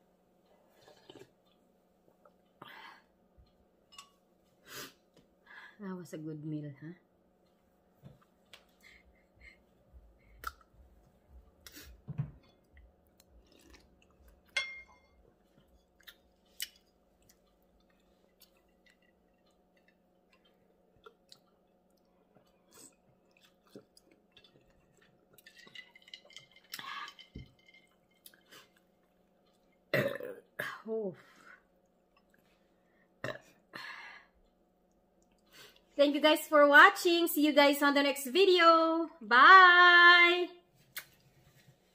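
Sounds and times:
faint steady hum: 0.0s - 41.9s
quiet chewing: 0.4s - 2.6s, 7.4s - 14.6s, 15.3s - 29.9s, 31.6s - 32.9s, 34.4s - 35.9s
mouth clicks and smacks: 10.3s - 10.8s, 40.9s - 41.2s.

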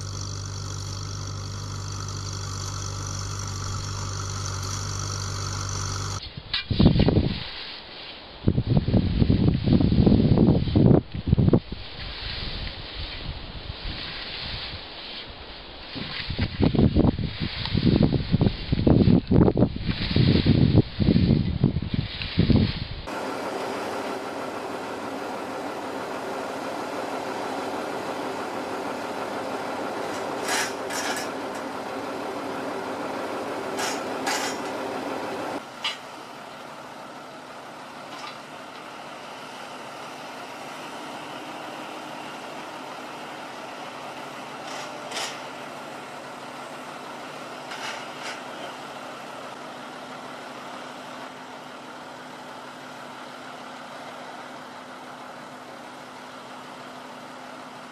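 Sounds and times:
excavator diesel engine running: 0.0s - 6.3s, 23.1s - 57.9s
sharp metal clanks: 30.1s - 31.7s, 33.8s - 34.8s.

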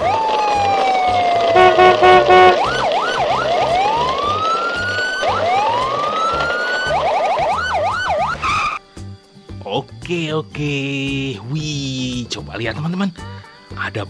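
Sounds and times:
police siren wailing: 0.0s - 8.7s.

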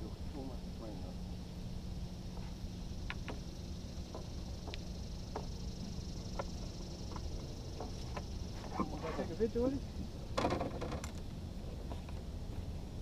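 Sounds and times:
faint irregular clicks: 3.0s - 8.4s.

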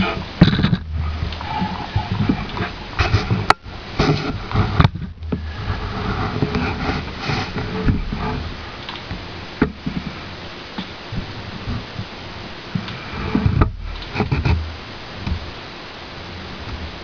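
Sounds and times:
handling noise on plastic: 0.0s - 15.6s.

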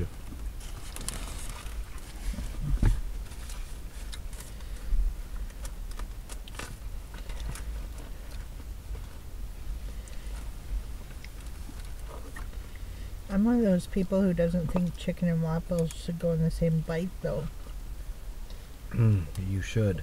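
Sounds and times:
steady low hum: 0.0s - 20.0s
chewing: 11.0s - 12.8s.

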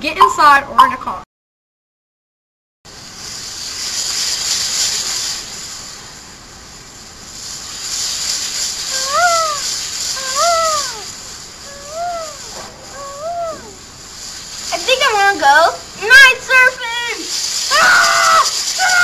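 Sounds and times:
ocean surf washing in: 7.8s - 19.0s
short rising and falling cry: 8.9s - 13.8s.

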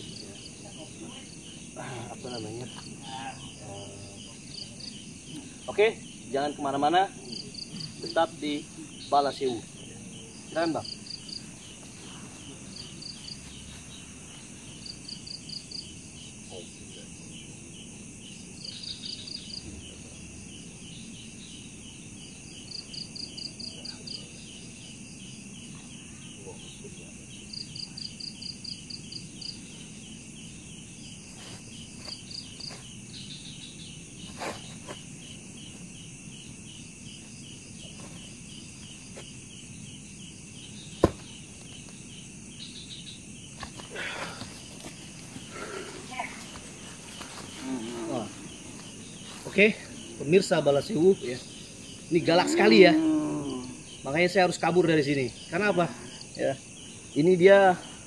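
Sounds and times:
cricket chirps: 0.0s - 58.0s
insects buzzing: 0.0s - 58.0s
sharp knock: 41.0s - 41.3s.

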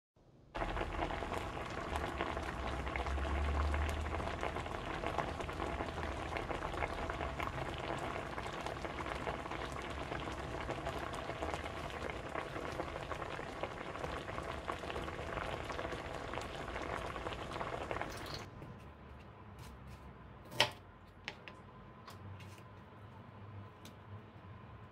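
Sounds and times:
stew bubbling in a pot: 0.6s - 18.5s.

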